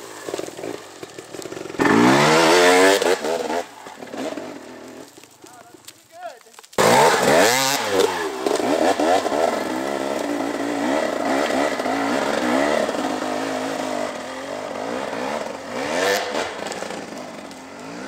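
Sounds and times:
dirt bike engine revving: 0.0s - 5.1s, 6.8s - 18.0s.

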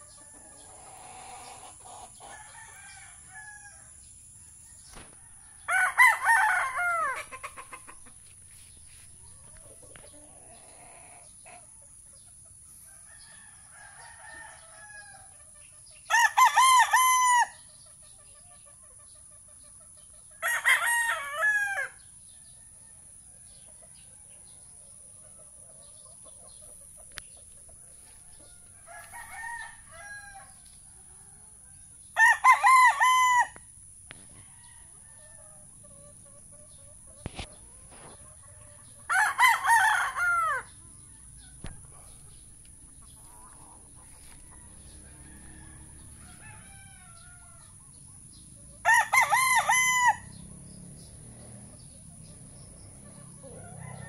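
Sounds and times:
young roosters crowing: 0.0s - 8.1s, 12.8s - 17.7s, 20.4s - 23.5s, 27.8s - 36.2s, 37.3s - 42.4s, 43.1s - 48.0s, 48.7s - 50.7s, 52.3s - 54.0s.

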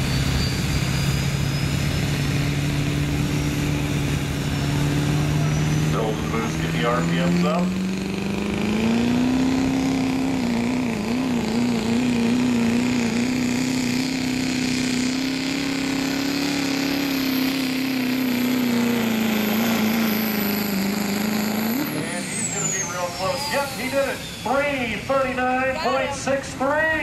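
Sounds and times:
diesel engine at full throttle: 0.0s - 27.0s
high turbo whistle: 16.4s - 26.0s.

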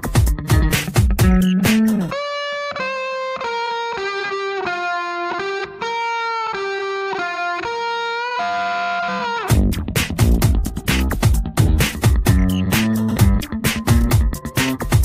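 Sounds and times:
beat with bass: 0.0s - 2.2s, 9.5s - 15.0s
lead guitar melody: 0.0s - 15.0s.

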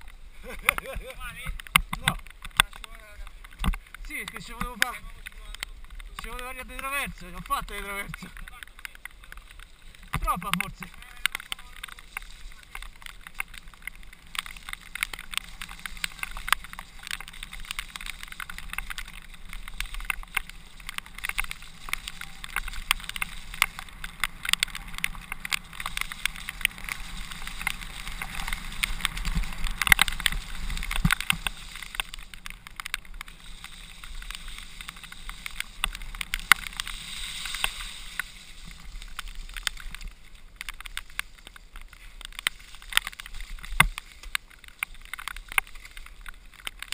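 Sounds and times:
bike rattling over bumps: 0.0s - 46.9s
tyre noise on dirt: 0.0s - 46.9s.

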